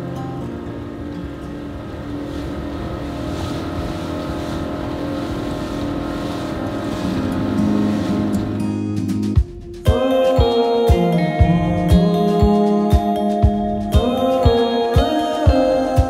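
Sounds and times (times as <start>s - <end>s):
outboard motor running: 0.0s - 9.6s
boat wake rushing: 0.0s - 10.8s.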